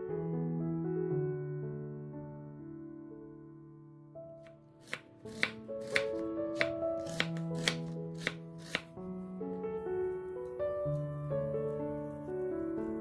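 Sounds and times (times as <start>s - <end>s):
soft background music: 0.0s - 13.0s
knife knocking on cutting board: 4.8s - 8.8s.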